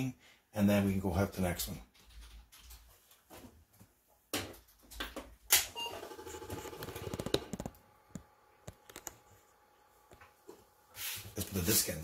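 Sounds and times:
short computer beep: 5.7s - 6.8s.

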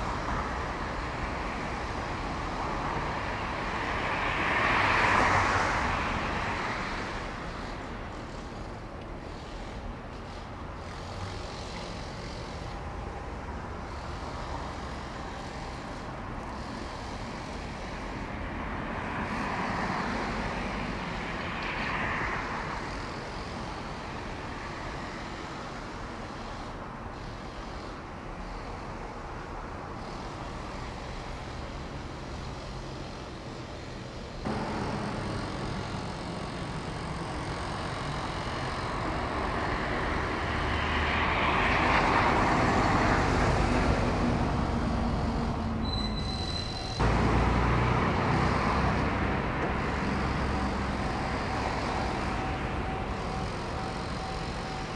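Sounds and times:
road traffic noise: 0.0s - 54.9s
vehicle passing: 34.4s - 45.8s, 47.0s - 54.9s.

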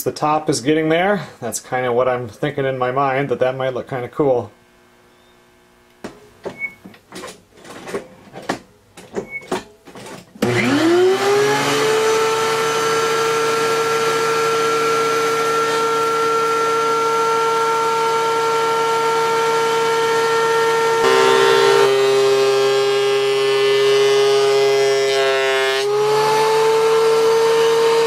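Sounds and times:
electric motor whine: 10.4s - 28.0s.

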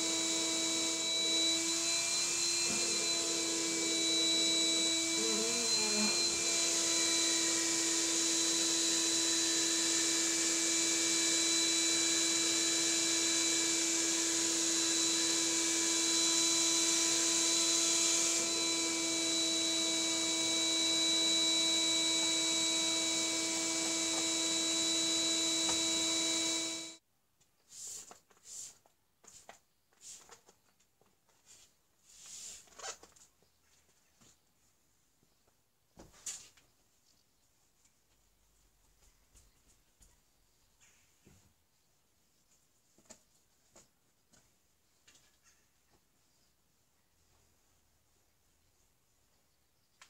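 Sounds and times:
vacuum cleaner running: 0.0s - 27.0s.

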